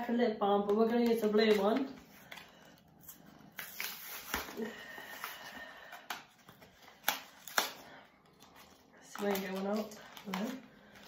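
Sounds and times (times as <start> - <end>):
plastic packaging crinkling: 6.3 - 11.0.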